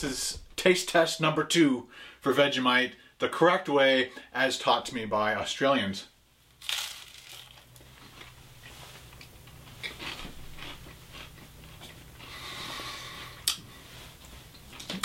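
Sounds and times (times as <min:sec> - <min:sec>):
chewing with small crunches: 0:07.2 - 0:12.5.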